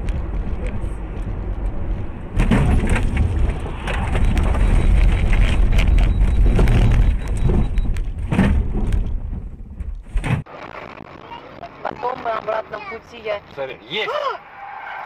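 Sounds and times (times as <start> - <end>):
knocks and thumps: 0.0 - 10.5
road and wind rumble in car: 0.0 - 13.9.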